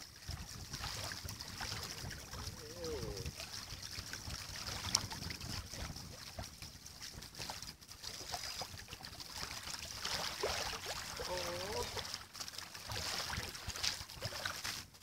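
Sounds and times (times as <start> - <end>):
wind buffeting microphone: 0.0 - 7.6
waves lapping on stony shore: 0.0 - 15.0.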